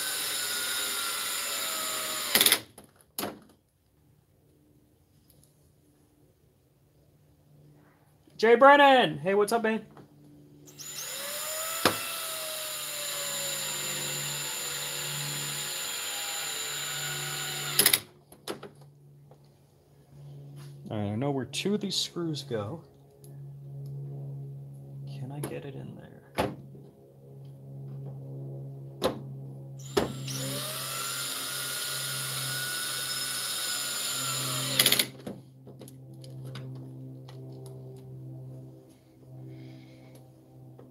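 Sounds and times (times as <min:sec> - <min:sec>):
cordless drill driving screw: 0:00.0 - 0:02.6, 0:10.7 - 0:18.0, 0:29.8 - 0:35.1
drill clutch clicking: 0:17.6 - 0:18.0, 0:33.5 - 0:35.1.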